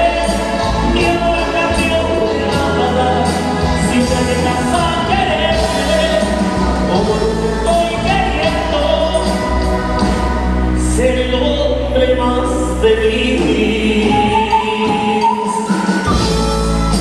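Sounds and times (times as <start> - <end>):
heavy bass line: 0.0 - 14.7
drums: 0.0 - 17.0
person singing lead: 10.8 - 16.1.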